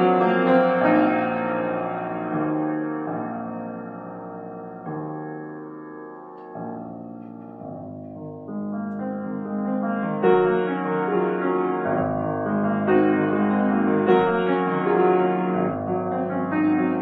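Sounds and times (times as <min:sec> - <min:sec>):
classical grand piano piece: 0:00.0 - 0:17.0.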